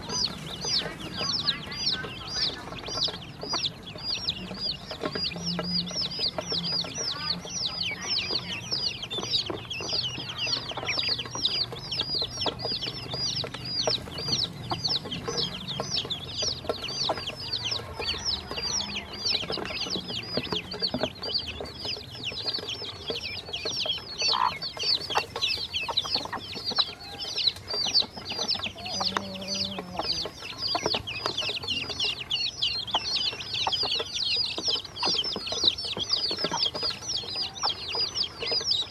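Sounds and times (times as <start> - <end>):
beaks pecking on metal bowl: 0.0 - 38.9
ducklings and chicks peeping: 0.0 - 38.9.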